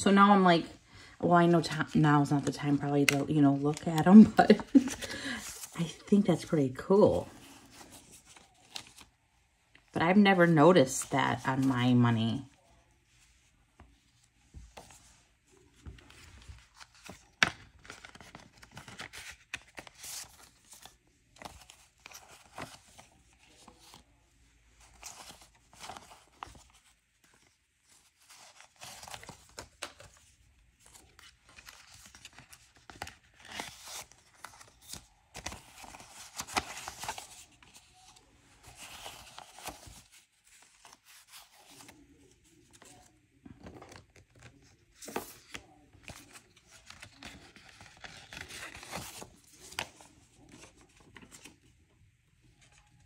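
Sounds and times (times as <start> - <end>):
paper money rustling: 1.5 - 9.1, 24.8 - 51.6.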